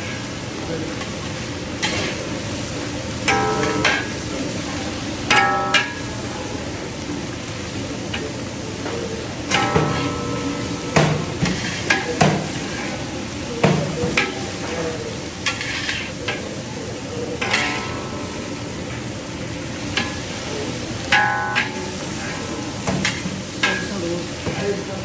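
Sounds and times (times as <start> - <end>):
food sizzling: 0.0 - 25.0
metal spatula scraping wok: 11.4 - 13.1, 15.4 - 16.4.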